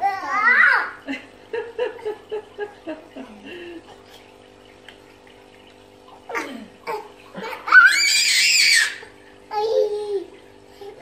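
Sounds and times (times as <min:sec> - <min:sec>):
loud high cry: 0:07.7 - 0:09.0.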